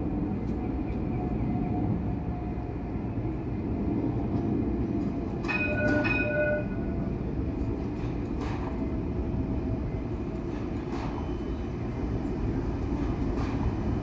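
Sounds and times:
light rail vehicle rumbling: 0:00.0 - 0:14.0
tram warning bell: 0:05.4 - 0:07.3.

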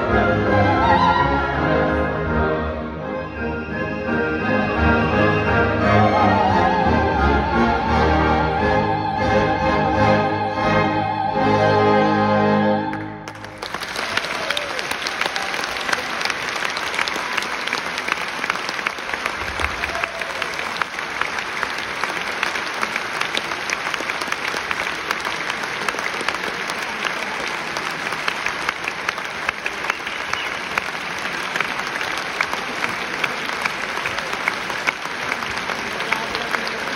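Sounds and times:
audience applauding: 0:12.9 - 0:36.9.

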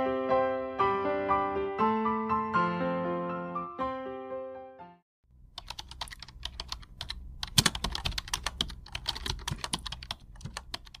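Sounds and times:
keyboard key clicks: 0:05.6 - 0:11.0.

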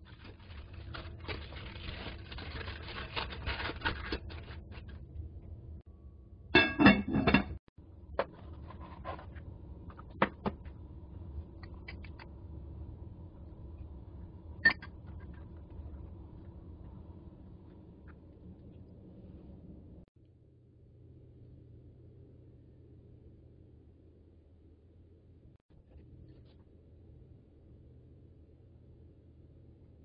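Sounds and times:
cabbage leaves rustling: 0:00.0 - 0:04.9.

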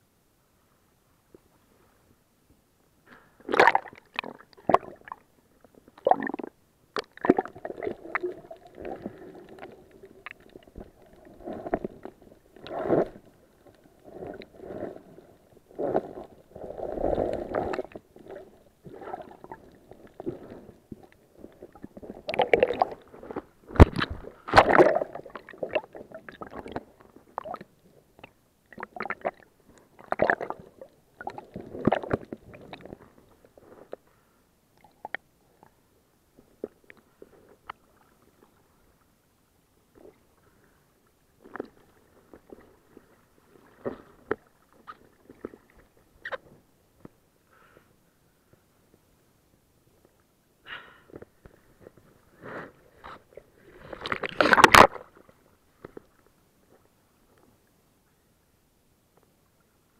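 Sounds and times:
muffled water sloshing and gurgling: 0:03.4 - 0:34.0, 0:51.3 - 0:55.9.

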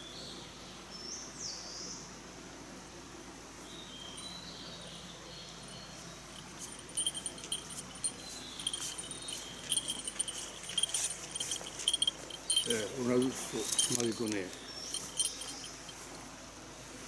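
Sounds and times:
small bell jingling: 0:05.6 - 0:16.1.

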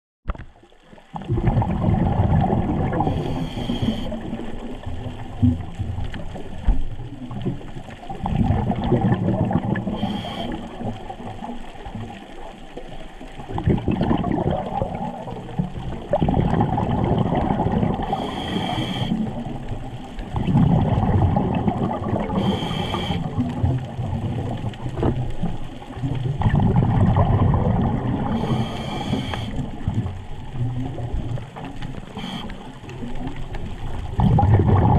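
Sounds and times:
exhaled air bubbling: 0:00.3 - 0:34.9
regulator inhale hiss: 0:03.0 - 0:04.5, 0:09.9 - 0:11.0, 0:18.0 - 0:19.4, 0:22.3 - 0:23.5, 0:28.3 - 0:29.8, 0:32.1 - 0:33.0.

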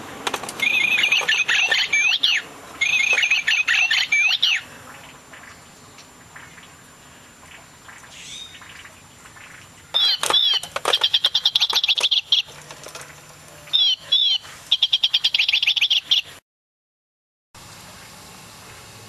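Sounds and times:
toy bird chirping birdsong: 0:00.6 - 0:04.6, 0:08.1 - 0:08.8, 0:09.9 - 0:12.6, 0:13.7 - 0:16.4.

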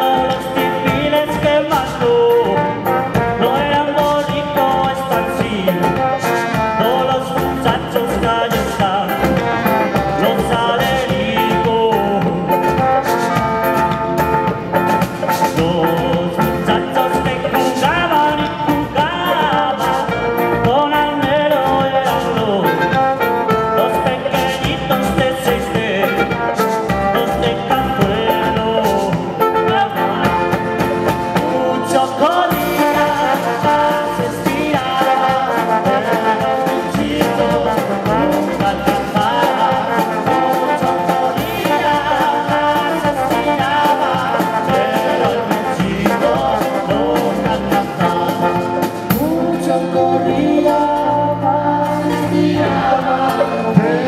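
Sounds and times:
acoustic and electric guitars: 0:00.0 - 0:54.0
clarinet: 0:00.0 - 0:54.0
drum kit and cymbals: 0:00.0 - 0:54.0
trombone: 0:00.0 - 0:54.0
wooden percussion: 0:00.0 - 0:54.0.

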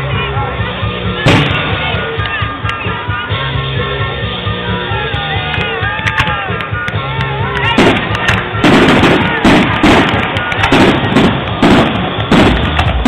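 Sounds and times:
music: 0:00.0 - 0:13.0
fireworks banging and crackling: 0:01.2 - 0:02.8, 0:05.5 - 0:13.0.

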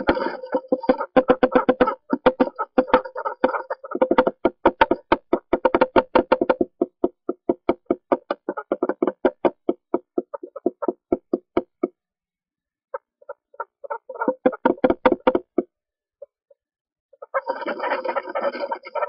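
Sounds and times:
woodpeckers tapping on wood: 0:00.0 - 0:12.0, 0:13.2 - 0:15.7.

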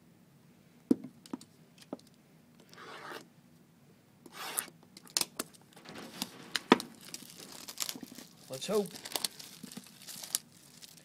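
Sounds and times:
plastic wrap tearing: 0:05.8 - 0:11.0.

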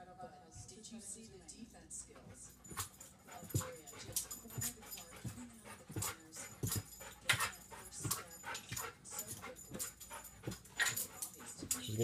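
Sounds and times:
dog panting: 0:01.8 - 0:12.0
thumps and scuffs: 0:02.6 - 0:12.0.

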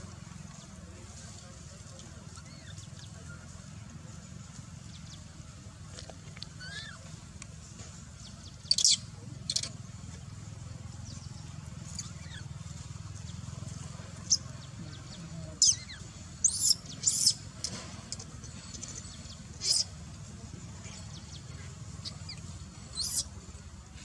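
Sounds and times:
low background hum: 0:00.0 - 0:24.0
animal squeaks: 0:06.6 - 0:07.0, 0:08.6 - 0:09.8, 0:15.6 - 0:17.8, 0:18.4 - 0:20.0, 0:22.0 - 0:23.3.

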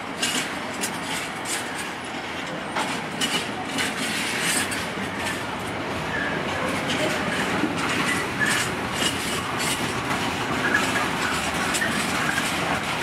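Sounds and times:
train wheels clattering over rail joints: 0:00.0 - 0:13.0
high wheel squeals: 0:06.1 - 0:09.9.

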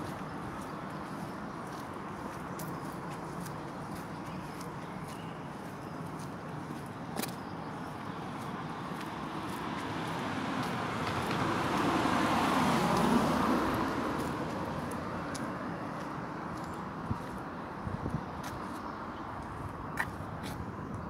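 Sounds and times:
car passing: 0:08.8 - 0:17.4.

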